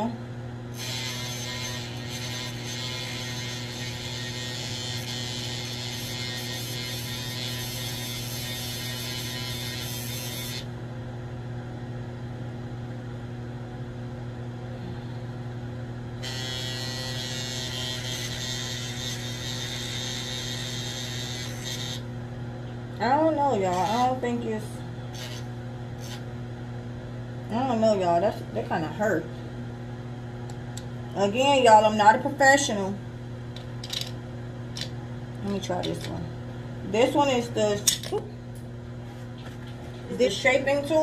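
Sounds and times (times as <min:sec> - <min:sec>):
electric nail file motor hum: 0:00.7 - 0:10.8, 0:16.2 - 0:22.1, 0:23.6 - 0:24.2, 0:25.1 - 0:26.3.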